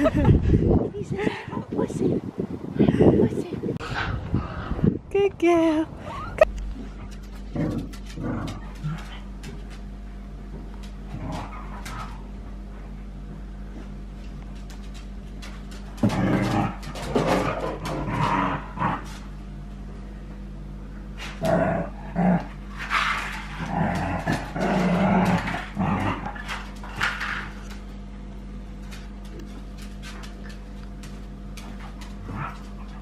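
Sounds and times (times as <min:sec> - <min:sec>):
dogs growling and barking: 0:06.5 - 0:09.8, 0:10.8 - 0:12.7, 0:15.4 - 0:19.4, 0:21.2 - 0:28.0, 0:28.8 - 0:33.0.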